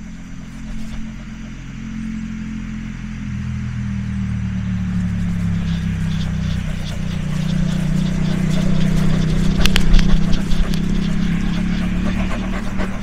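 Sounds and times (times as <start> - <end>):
motor humming: 0.0 - 13.0
scattered clicks: 5.3 - 13.0.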